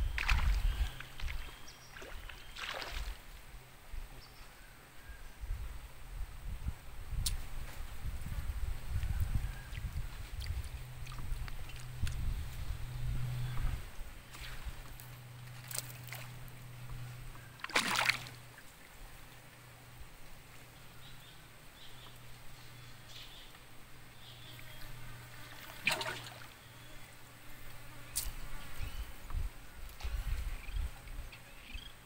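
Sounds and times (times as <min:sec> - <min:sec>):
river water lapping: 0:00.0 - 0:03.4, 0:10.4 - 0:12.2, 0:13.4 - 0:20.6, 0:25.6 - 0:26.6
steady low hum: 0:00.0 - 0:32.0.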